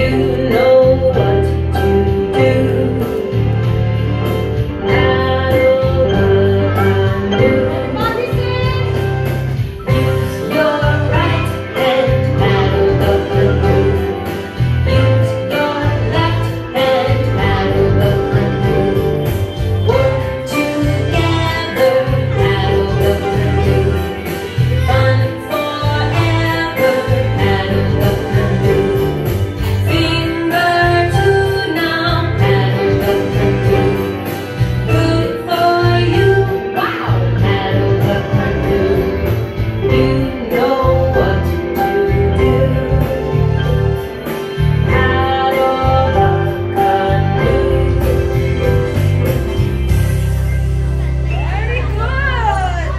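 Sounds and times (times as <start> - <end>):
bass line: 0.0 - 52.9
pianos and keyboards playing a tune: 0.0 - 52.9.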